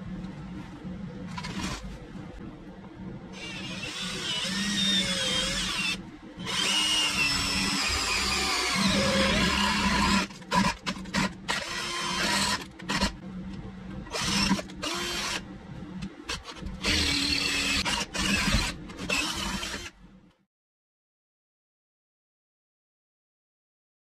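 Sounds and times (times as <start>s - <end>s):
cordless drill boring through steel: 3.4s - 13.1s, 14.1s - 15.4s, 16.8s - 19.9s.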